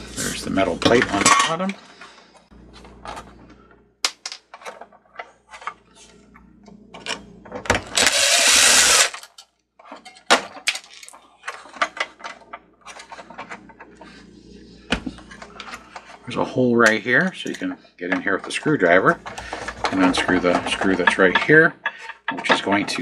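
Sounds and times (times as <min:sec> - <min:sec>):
parts clicking and knocking: 0:06.4 - 0:14.1, 0:16.8 - 0:23.0
cordless power driver running: 0:08.0 - 0:09.2.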